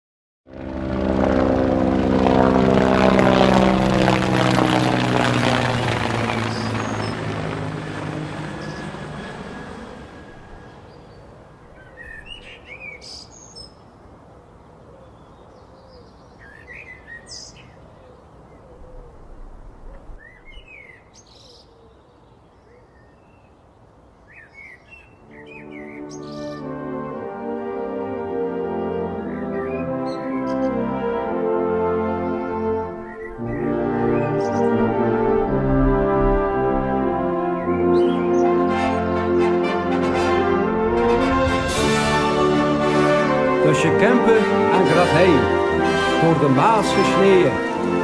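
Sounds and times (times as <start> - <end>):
propeller aircraft engine drone: 0.5 - 13.2, 25.2 - 48.0
small birds chirping: 8.5 - 9.1, 20.2 - 26.7.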